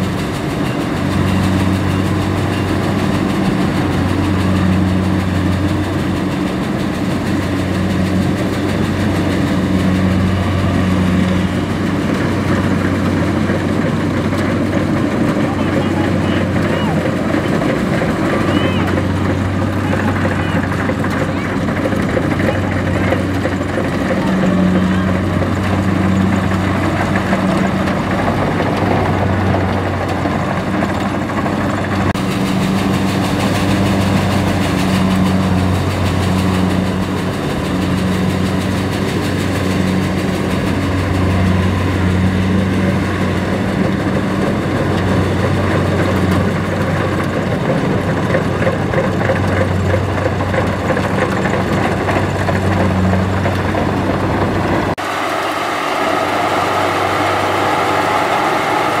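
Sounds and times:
diesel engine humming under load: 0.0 - 59.0
higher mechanical sound: 0.0 - 59.0.

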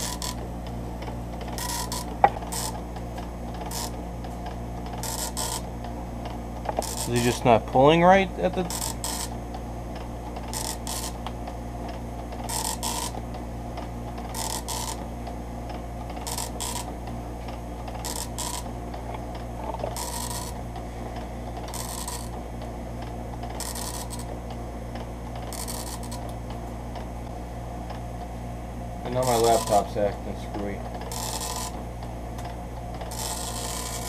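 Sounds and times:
steady low hum: 0.0 - 34.0
dot-matrix printer head chattering: 29.2 - 29.8, 31.1 - 31.7, 33.0 - 34.0.

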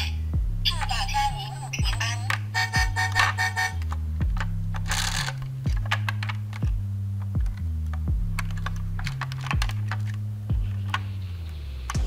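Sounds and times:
electronic music: 0.0 - 12.0
plastic toy vehicles clicking: 4.7 - 6.7.

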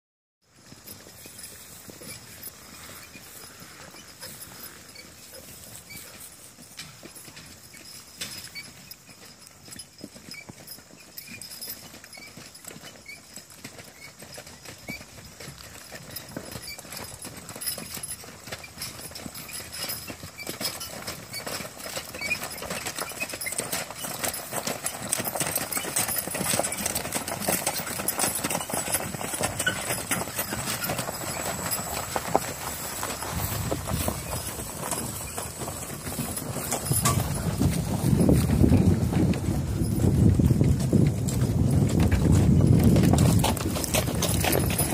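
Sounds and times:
horse hoofbeats on grass: 0.4 - 44.9
wagon rolling: 0.5 - 44.9.

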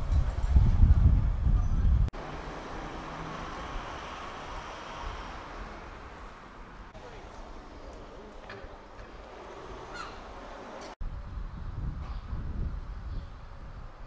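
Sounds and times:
wind rumble on microphone: 0.0 - 2.2, 11.0 - 14.0
distant traffic hum: 0.0 - 14.0.

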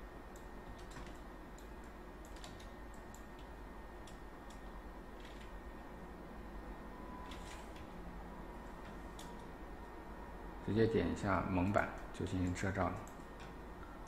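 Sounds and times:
computer mouse and keyboard clicking: 0.3 - 5.6, 8.8 - 9.5, 11.7 - 13.6.

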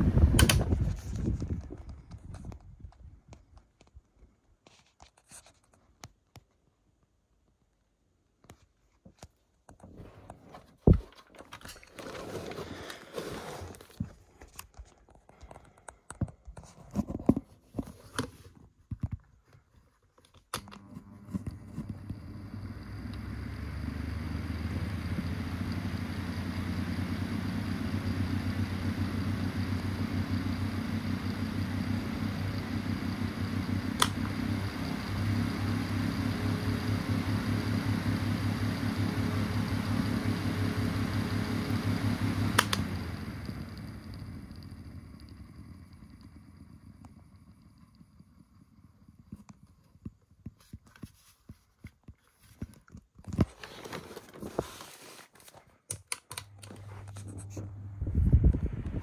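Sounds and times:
electric fan humming: 0.0 - 1.7, 20.6 - 49.4, 56.0 - 59.0
fan switch click: 0.3 - 0.8, 34.0 - 34.3, 42.6 - 42.9.

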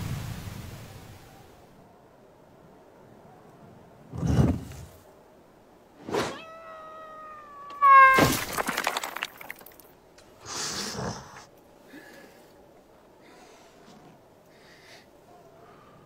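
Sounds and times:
crashing clatter: 7.8 - 9.9.

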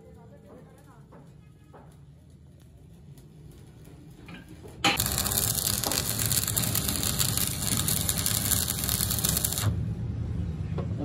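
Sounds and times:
welding arc crackling hiss: 4.9 - 9.8.

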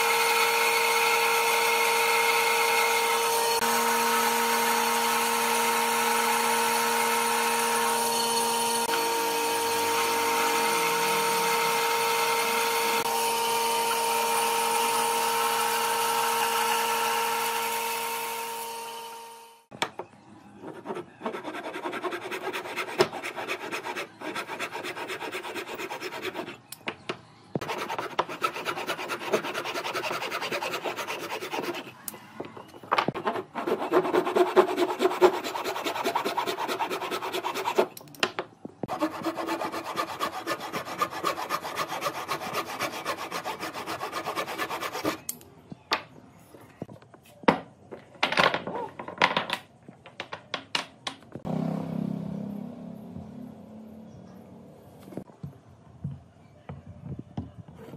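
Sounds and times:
hand saw cutting wood: 21.3 - 26.5, 27.6 - 32.0, 33.2 - 38.0, 38.9 - 45.3.

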